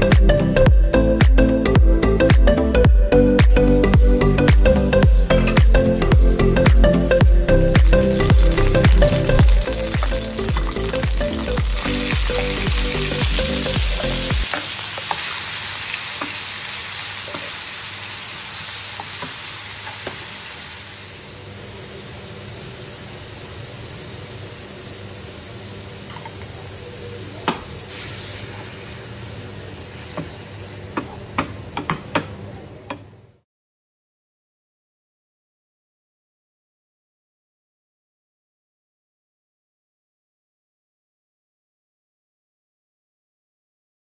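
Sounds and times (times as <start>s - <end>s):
background music: 0.0s - 14.5s
tofu sizzling in oil: 7.7s - 30.9s
wooden spatula knocking on pan: 31.0s - 32.3s.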